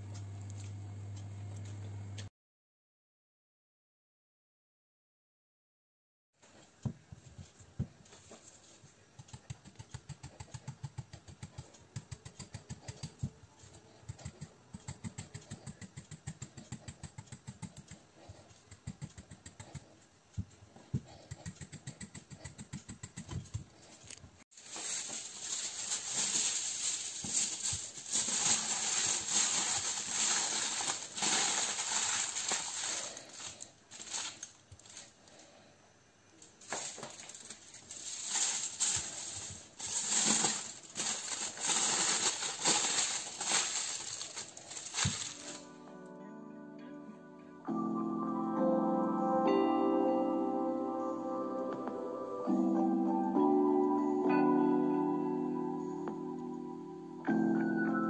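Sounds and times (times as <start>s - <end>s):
light rhythmic tapping: 6.4s - 24.0s
aluminium foil crinkling: 24.5s - 35.4s, 36.6s - 45.7s.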